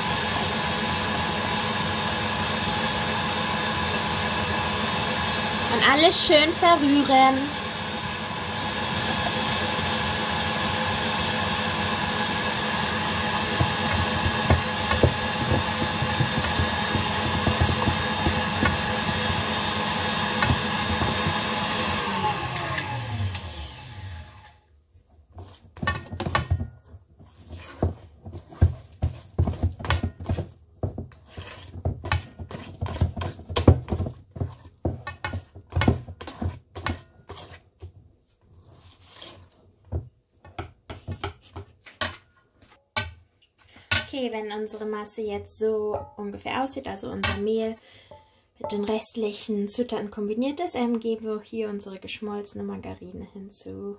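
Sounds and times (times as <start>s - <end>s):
electric mixer beating batter: 0.0s - 24.6s
utensil stirring against bowl: 12.5s - 22.7s, 25.0s - 39.6s.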